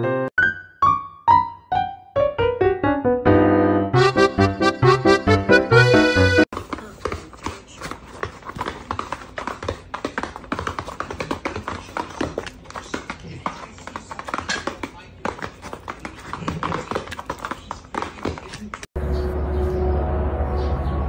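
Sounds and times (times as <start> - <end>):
dog claws clicking on hard floor: 6.6 - 18.9.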